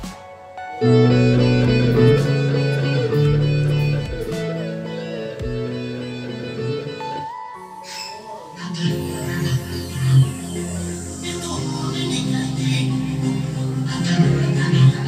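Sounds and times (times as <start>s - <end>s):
plucked guitar music: 0.0s - 7.6s.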